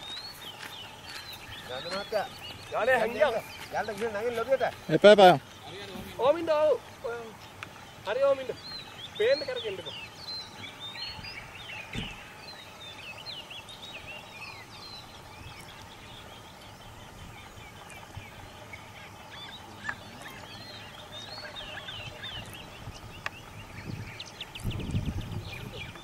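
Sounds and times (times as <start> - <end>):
birds chirping: 0.0 - 26.0
low thump: 11.9 - 12.2.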